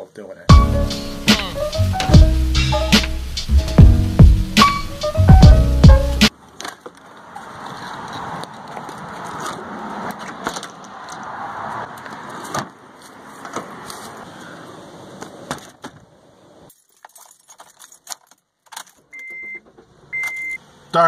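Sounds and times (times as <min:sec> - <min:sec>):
keys jangling: 0:16.7 - 0:19.1.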